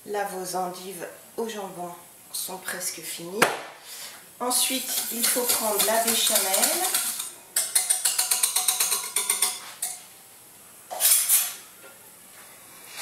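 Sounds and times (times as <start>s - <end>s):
whisk ticking against saucepan: 4.8s - 10.0s.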